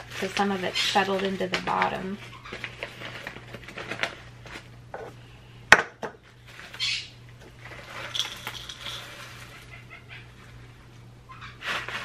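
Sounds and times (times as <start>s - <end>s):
dry food being scooped: 11.6s - 12.0s.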